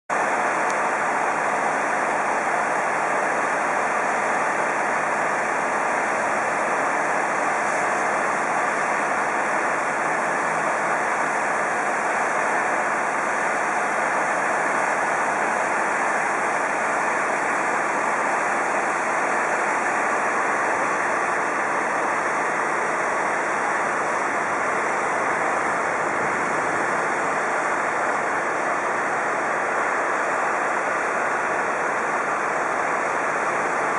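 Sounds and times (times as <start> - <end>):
diesel engines idling: 0.1 - 33.9.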